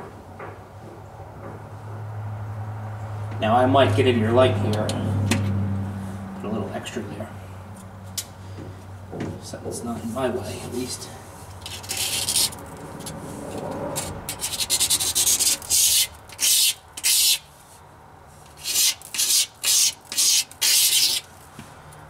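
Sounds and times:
razor blade scraping metal: 11.6 - 12.6, 14.0 - 17.5, 18.5 - 21.3.

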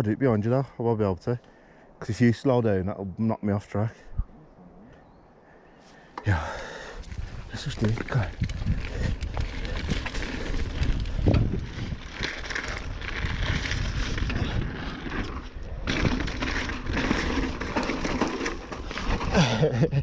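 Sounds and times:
bike tyres rolling over rough ground: 6.2 - 20.0
bike clattering and rattling: 7.1 - 20.0.

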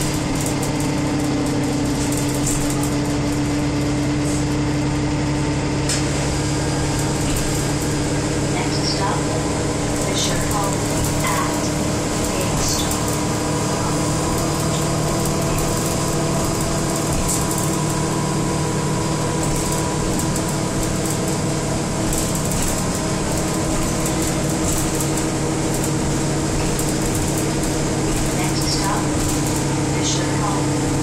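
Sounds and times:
bus engine drone: 0.0 - 31.0.

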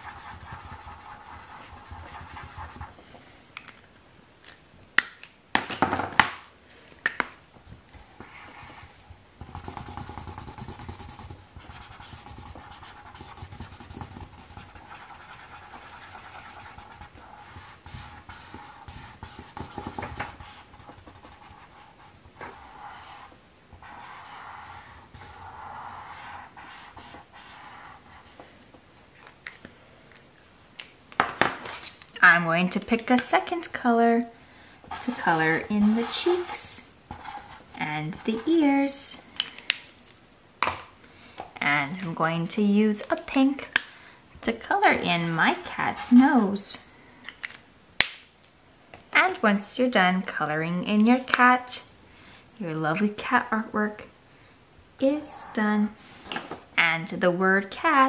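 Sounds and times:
marker rubbing on paper: 0.0 - 2.9, 8.2 - 28.3, 34.9 - 38.6.

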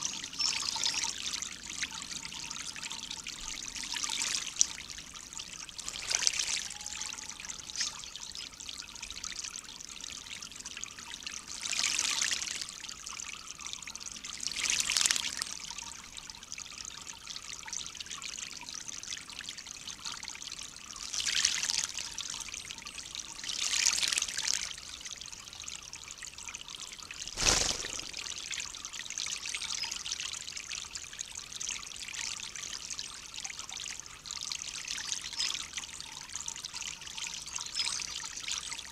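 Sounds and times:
trickle of running water: 0.0 - 38.9
bird splashing in water: 27.3 - 28.6.

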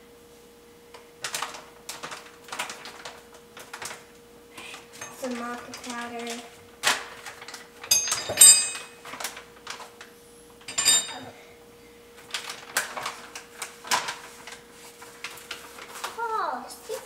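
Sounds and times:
faint steady hum: 3.6 - 13.4
metal spoon clinking on blender jar: 7.9 - 8.9, 10.7 - 11.2.

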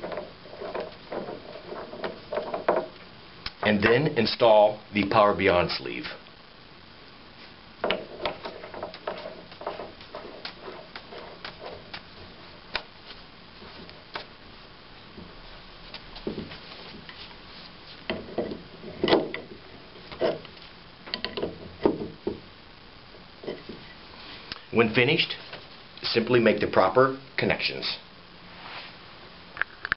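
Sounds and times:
metal clicks and scrapes: 0.0 - 3.6.

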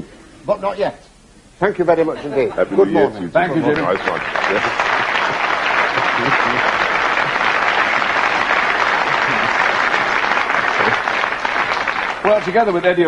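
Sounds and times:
audience applauding: 3.6 - 13.0.

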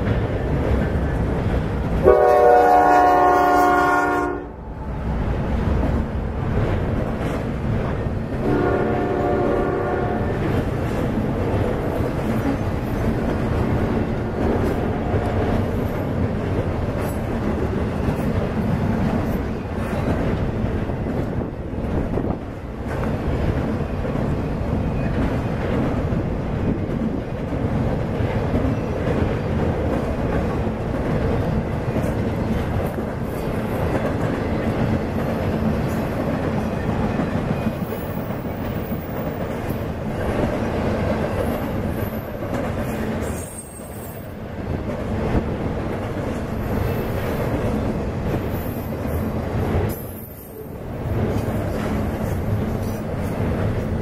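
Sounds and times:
freight train rumbling over bridge: 0.0 - 54.0.

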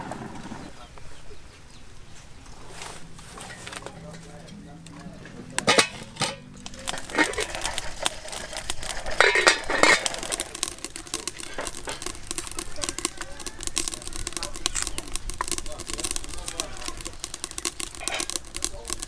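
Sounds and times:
metal lid clattering: 3.3 - 19.0
cooking pot clanking on stove: 3.4 - 19.0.

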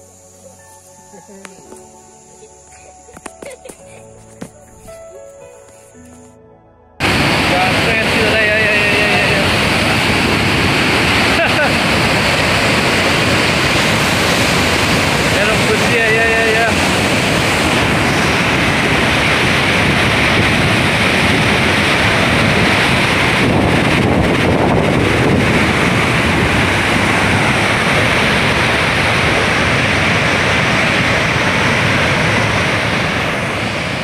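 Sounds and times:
loud rushing noise: 7.0 - 34.0.

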